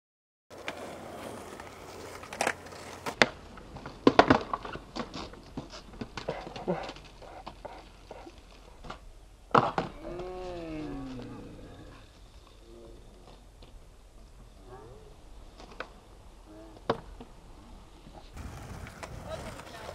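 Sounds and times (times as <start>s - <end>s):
skateboard clacking and clattering: 0.5s - 7.8s, 18.4s - 19.9s
skateboard wheels rolling on concrete: 0.5s - 19.9s.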